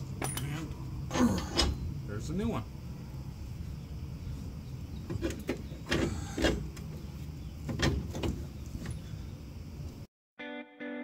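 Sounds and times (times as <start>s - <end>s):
steady low rumble: 0.0s - 10.1s
metal parts knocking and clinking: 0.2s - 0.7s.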